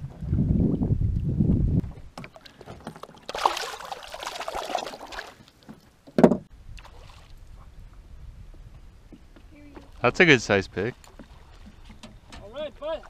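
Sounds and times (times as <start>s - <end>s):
water splashing: 2.2s - 5.8s, 6.8s - 7.4s.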